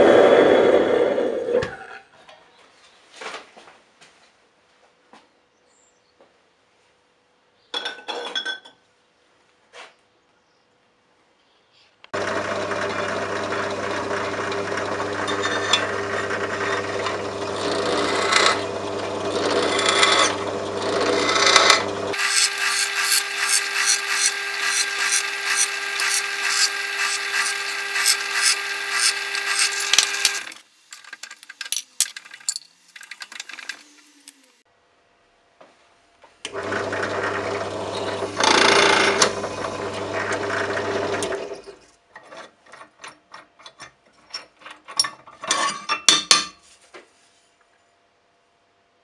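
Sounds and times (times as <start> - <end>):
power tool grinding: 12.1 - 30.7, 36.5 - 41.8
drill press whining: 12.2 - 30.6, 36.4 - 41.8
metal chips crackling: 26.0 - 34.0.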